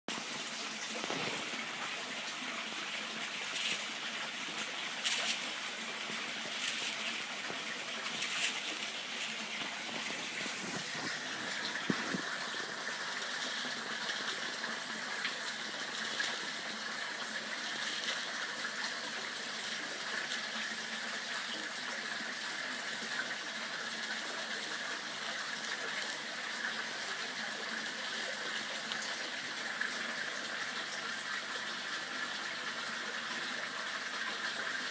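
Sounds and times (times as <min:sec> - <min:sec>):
waterfall splashing into pond: 0:00.1 - 0:34.9.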